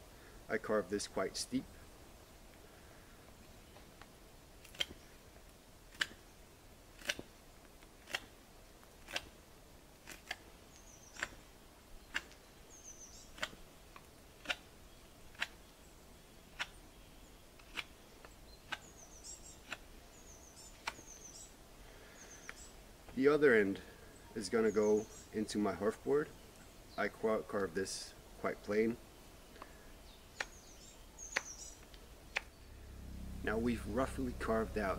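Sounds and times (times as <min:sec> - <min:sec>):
knife carving wood: 0:04.6 - 0:05.2, 0:05.8 - 0:06.3, 0:06.9 - 0:15.6, 0:16.5 - 0:16.8, 0:17.6 - 0:21.3, 0:30.3 - 0:32.6.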